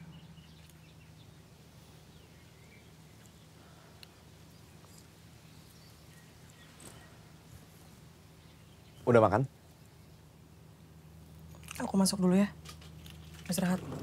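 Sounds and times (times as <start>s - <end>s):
faint bird chirps: 0.0s - 7.5s
low steady hum: 0.0s - 14.0s.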